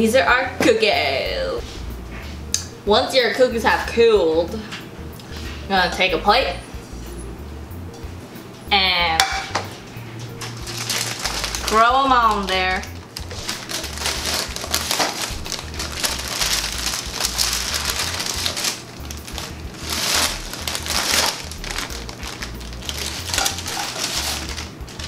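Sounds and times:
parchment paper crinkling: 0:10.4 - 0:25.0.

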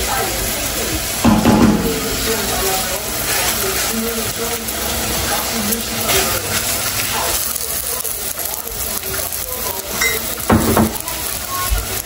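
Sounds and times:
dough frying in hot oil: 0:00.0 - 0:12.0.

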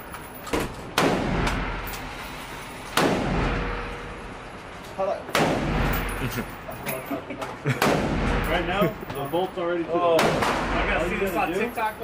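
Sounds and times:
gunshots echoing indoors: 0:01.0 - 0:01.9, 0:02.9 - 0:04.1, 0:05.3 - 0:06.1, 0:07.8 - 0:08.5, 0:10.2 - 0:10.9.

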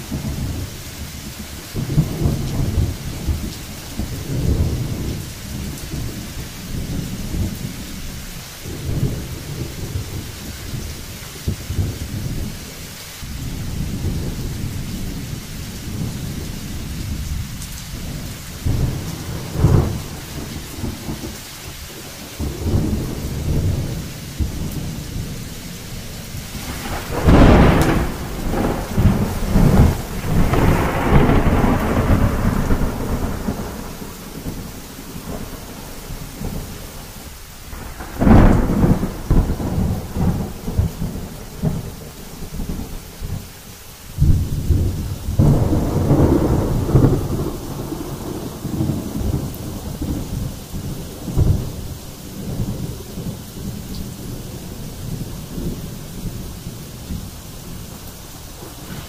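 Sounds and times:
low rumble of thunder: 0:00.0 - 0:43.5, 0:44.1 - 0:59.0
steady rain: 0:00.0 - 0:59.0
loud thunderclap: 0:17.1 - 0:21.4, 0:26.4 - 0:36.8, 0:37.7 - 0:43.4, 0:44.2 - 0:57.2, 0:58.5 - 0:59.0
sharp thunder crack: 0:18.0 - 0:21.4, 0:26.4 - 0:35.8, 0:37.7 - 0:42.0, 0:44.2 - 0:51.8, 0:58.5 - 0:59.0.

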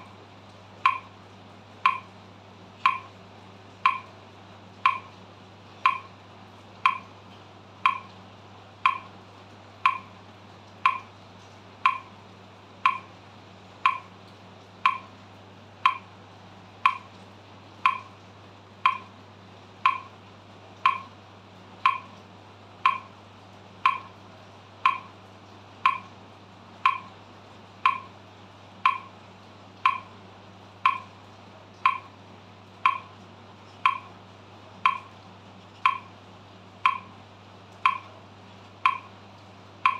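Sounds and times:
metronome clicking: 0:00.8 - 0:01.1, 0:01.8 - 0:02.1, 0:02.8 - 0:03.1, 0:03.8 - 0:04.1, 0:04.8 - 0:05.1, 0:05.8 - 0:06.1, 0:06.8 - 0:07.1, 0:07.8 - 0:08.1, 0:08.8 - 0:09.1, 0:09.8 - 0:10.2, 0:10.8 - 0:11.1, 0:11.8 - 0:12.2, 0:12.8 - 0:13.1, 0:13.8 - 0:14.1, 0:14.8 - 0:15.1, 0:15.8 - 0:16.1, 0:16.8 - 0:17.1, 0:17.8 - 0:18.2, 0:18.8 - 0:19.1, 0:19.8 - 0:20.2, 0:20.8 - 0:21.1, 0:21.8 - 0:22.2, 0:22.8 - 0:23.1, 0:23.8 - 0:24.2, 0:24.8 - 0:25.1, 0:25.8 - 0:26.1, 0:26.8 - 0:27.2, 0:27.8 - 0:28.2, 0:28.8 - 0:29.1, 0:29.8 - 0:30.1, 0:30.8 - 0:31.1, 0:31.8 - 0:32.1, 0:32.8 - 0:33.1, 0:33.8 - 0:34.2, 0:34.8 - 0:35.1, 0:35.8 - 0:36.1, 0:36.8 - 0:37.2, 0:37.8 - 0:38.2, 0:38.8 - 0:39.2.

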